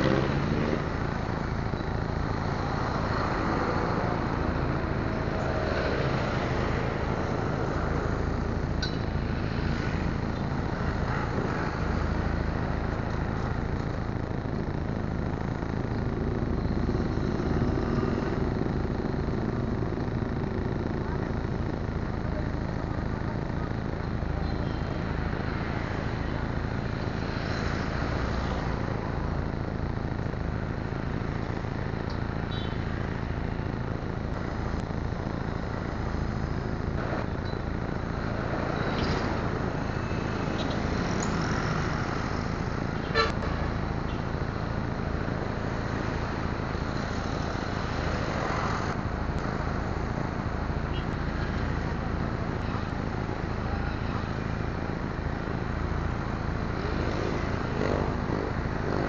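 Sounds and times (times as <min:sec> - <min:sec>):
passing traffic: 0:00.0 - 0:59.0.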